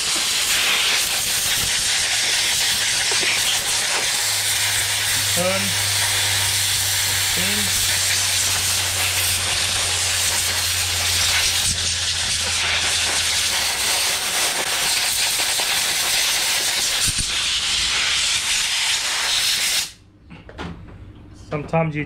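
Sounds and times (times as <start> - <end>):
compressed air blow gun hissing: 0.0 - 20.0.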